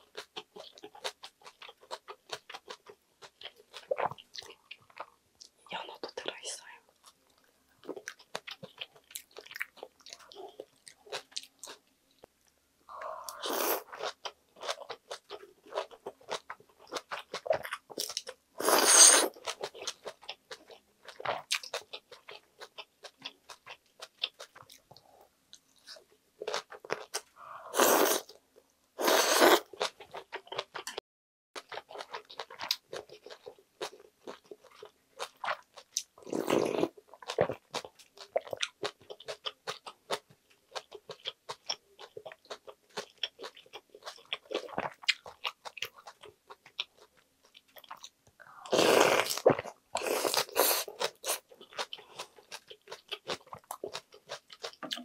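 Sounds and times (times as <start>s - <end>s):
slurping broth: 18.6s - 19.3s, 27.4s - 28.3s, 29.0s - 29.7s, 48.7s - 49.4s.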